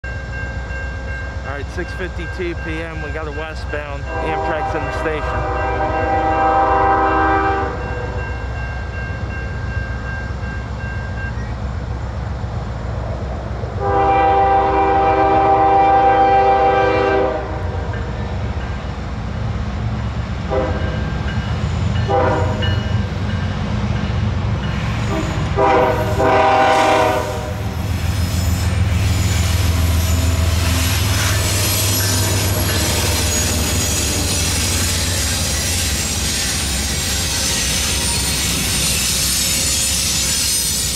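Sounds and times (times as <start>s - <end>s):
locomotive air horn blasts: 4.1s - 8.2s, 13.8s - 17.9s, 20.5s - 21.0s, 22.1s - 22.7s, 25.1s - 27.8s.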